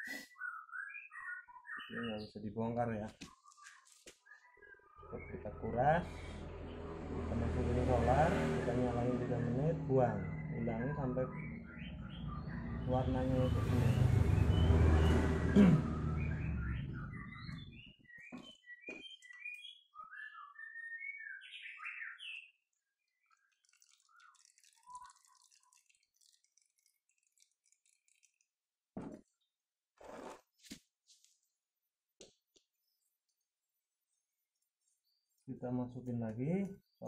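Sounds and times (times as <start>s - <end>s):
small birds chirping: 0.0s - 7.1s, 9.1s - 28.6s, 32.2s - 37.0s
low rumble: 5.0s - 17.8s.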